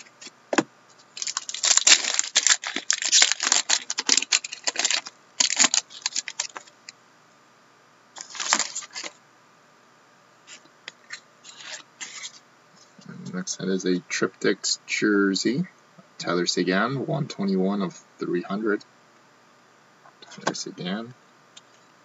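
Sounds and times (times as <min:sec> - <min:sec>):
wrapper crinkling being torn: 0:01.1 - 0:06.7, 0:08.2 - 0:09.2, 0:11.4 - 0:12.4.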